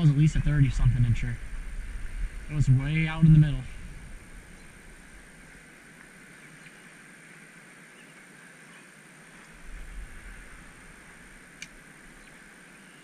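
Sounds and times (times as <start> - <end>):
low rumble: 0.0 - 5.6, 9.6 - 12.5
river water rushing: 1.4 - 7.8, 9.0 - 13.0.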